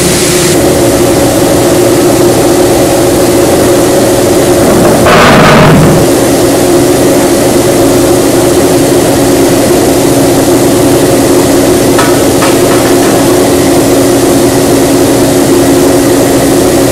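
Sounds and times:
rush of noise falling in pitch: 0.0s - 9.0s
machine hum: 0.0s - 16.9s.

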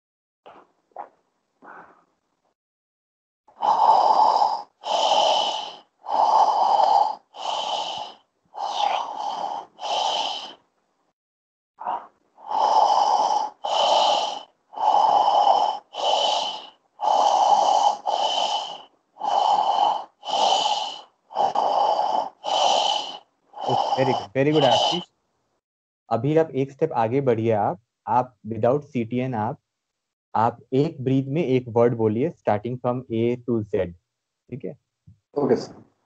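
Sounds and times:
man breathing forcefully: 3.5s - 10.6s, 11.8s - 25.1s.

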